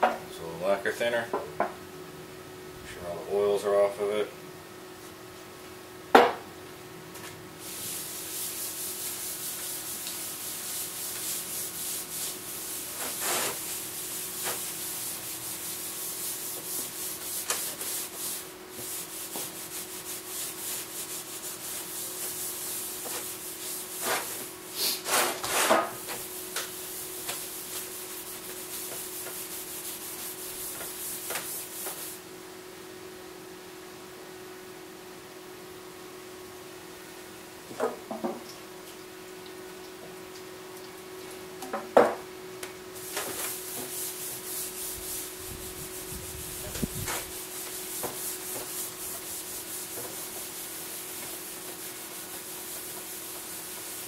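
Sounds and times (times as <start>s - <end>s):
rag rubbing on metal panel: 7.7s - 32.2s, 43.0s - 54.0s.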